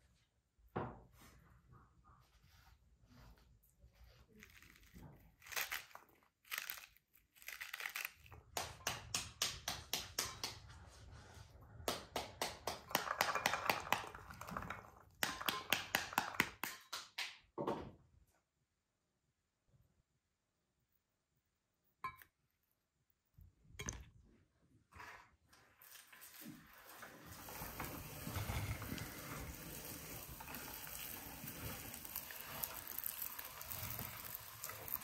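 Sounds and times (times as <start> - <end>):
fruit peel tearing and crackling: 4.4 - 8.4.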